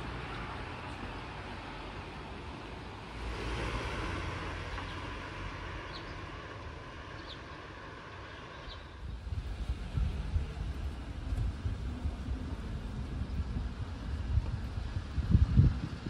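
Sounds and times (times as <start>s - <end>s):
distant traffic hiss: 0.0s - 14.2s.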